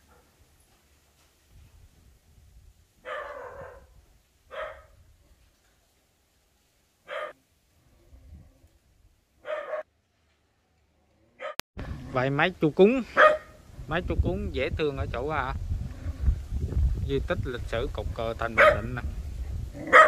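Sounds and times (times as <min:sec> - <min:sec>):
dog barking: 0:00.0 - 0:00.4, 0:03.0 - 0:03.9, 0:04.5 - 0:04.9, 0:07.1 - 0:07.4, 0:09.4 - 0:09.9, 0:11.4 - 0:11.6, 0:13.2 - 0:13.6, 0:18.6 - 0:18.9.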